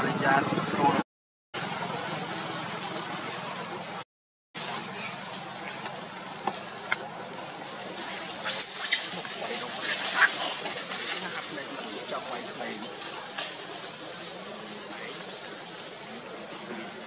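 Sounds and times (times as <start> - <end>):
steady outdoor hiss: 0.0 - 1.0, 1.6 - 4.0, 4.6 - 17.0
monkey squeals: 8.4 - 9.1.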